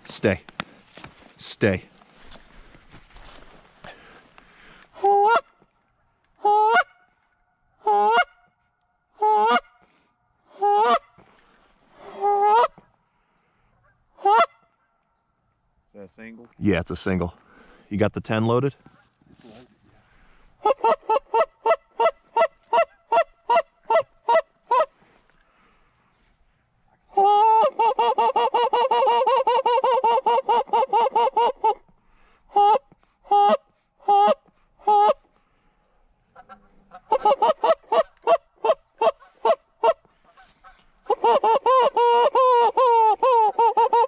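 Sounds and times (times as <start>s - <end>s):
goose call honks and clucks: 5.0s - 5.6s, 6.4s - 7.1s, 7.8s - 8.5s, 9.2s - 9.8s, 10.5s - 11.2s, 12.0s - 12.9s, 13.8s - 15.1s, 20.6s - 25.0s, 27.1s - 31.9s, 32.5s - 35.3s, 36.3s - 44.0s.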